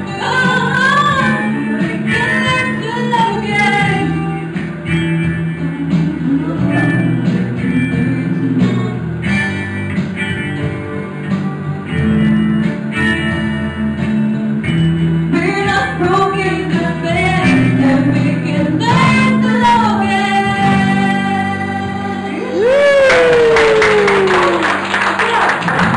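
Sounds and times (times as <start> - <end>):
woman singing: 0.0 - 4.8, 5.5 - 9.1, 15.3 - 22.9
band with guitars and keyboard: 0.0 - 25.9.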